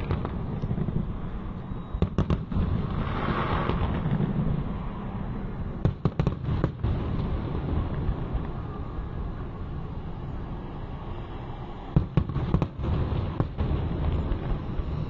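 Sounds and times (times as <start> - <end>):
fireworks bangs: 0.0 - 5.0, 5.8 - 9.4, 11.9 - 15.0.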